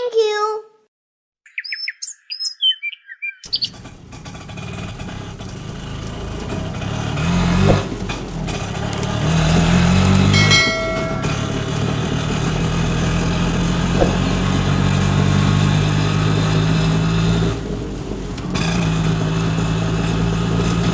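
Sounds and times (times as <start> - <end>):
chirping whistling glides: 1.5 - 3.7
small engine running: 3.5 - 20.9.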